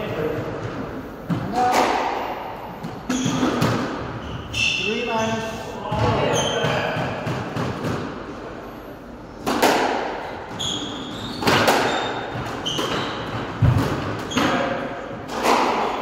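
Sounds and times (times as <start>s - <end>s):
squash ball hitting rackets and walls: 0.1s - 4.8s, 5.8s - 8.5s, 9.3s - 16.0s
shoes squeaking on wooden floor: 10.5s - 14.7s.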